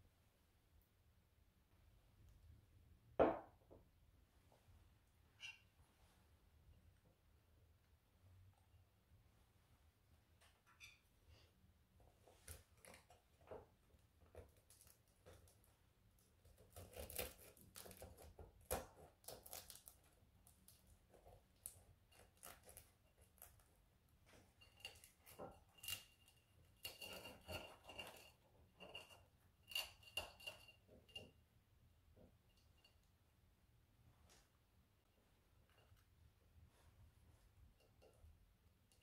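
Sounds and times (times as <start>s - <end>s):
crisp pastry crackling: 14.4s - 23.8s
cutlery scraping a ceramic plate: 24.3s - 31.4s.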